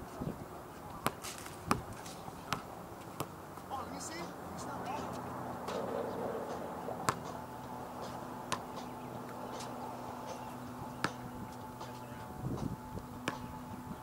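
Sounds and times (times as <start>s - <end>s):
steady hum: 4.3s - 14.0s.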